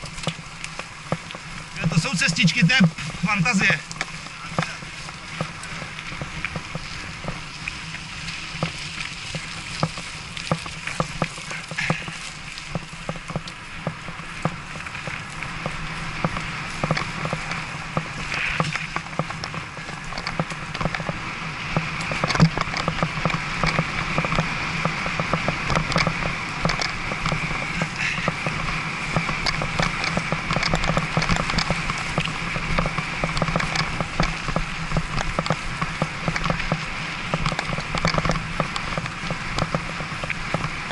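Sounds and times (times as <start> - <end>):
bicycle tyre rumble on gravel: 0.0 - 40.9
bike rattles and clicks: 0.0 - 40.9.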